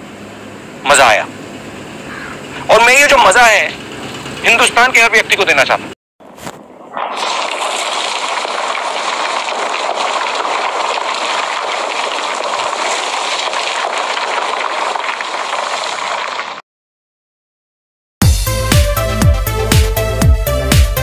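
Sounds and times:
water rushing: 6.5s - 16.6s.

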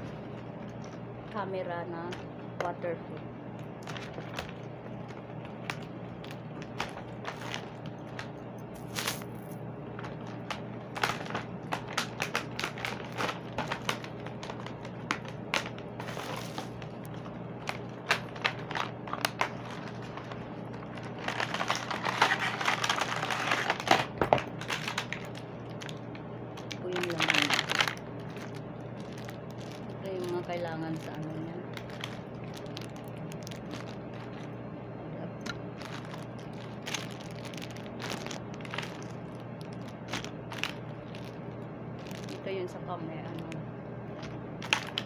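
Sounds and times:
plastic packaging crinkling: 3.4s - 45.0s.

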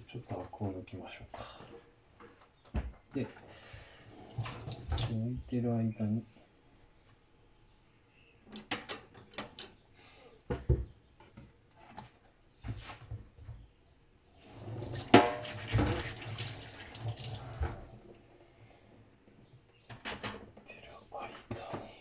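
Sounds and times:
tap running into sink: 4.4s - 5.1s, 14.6s - 17.8s.

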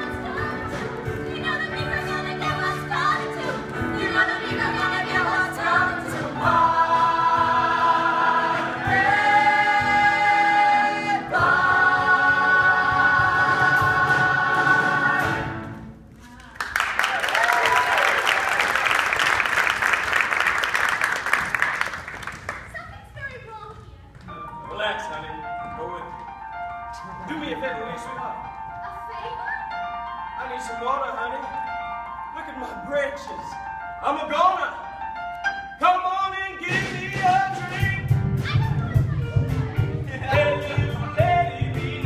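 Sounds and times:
ensemble singing with live band: 3.2s - 15.6s
audience applauding: 16.2s - 23.0s.

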